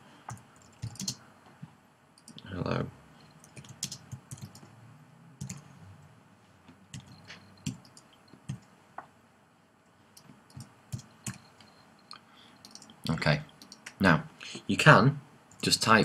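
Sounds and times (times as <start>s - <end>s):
computer keyboard keystrokes: 0.3s - 1.2s, 3.4s - 4.7s, 5.4s - 5.6s, 6.9s - 8.7s, 10.2s - 11.7s, 12.6s - 14.0s.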